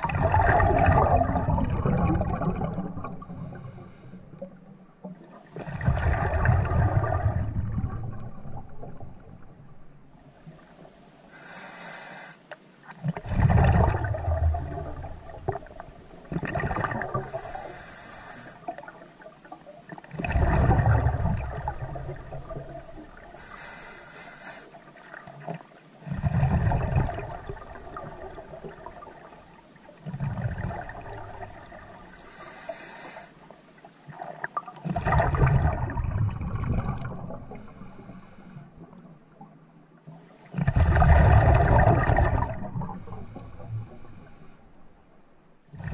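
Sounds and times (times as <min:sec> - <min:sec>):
bubbling exhaled air: 0:00.0 - 0:04.3, 0:13.2 - 0:18.6, 0:20.1 - 0:23.9, 0:34.8 - 0:39.0, 0:40.6 - 0:44.6
regulator hissing inhale: 0:03.2 - 0:04.4, 0:11.3 - 0:12.5, 0:17.2 - 0:18.7, 0:23.4 - 0:24.8, 0:32.0 - 0:33.4, 0:37.4 - 0:38.8, 0:42.8 - 0:44.8.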